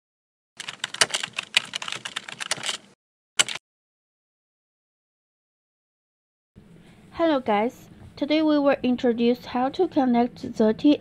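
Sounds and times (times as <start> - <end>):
keyboard typing clicks: 0.6 - 2.8, 3.4 - 3.6.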